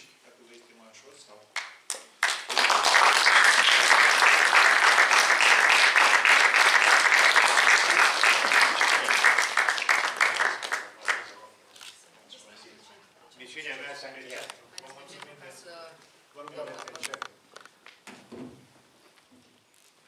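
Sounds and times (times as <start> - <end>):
audience applauding: 1.6 - 11.4.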